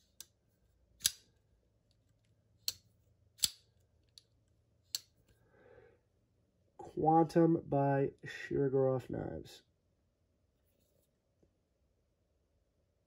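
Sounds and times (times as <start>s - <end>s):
knife blade snapping open and closing: 1.0s - 1.3s, 3.4s - 3.6s.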